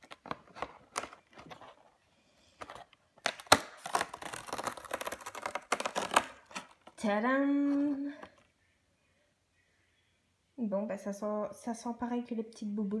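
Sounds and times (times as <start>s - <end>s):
cardboard tearing and crackling: 3.2s - 6.9s.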